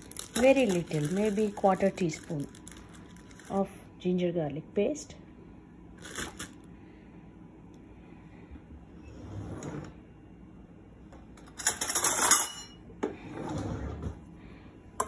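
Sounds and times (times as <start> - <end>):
metal utensils clinking on pot: 11.6 - 12.8.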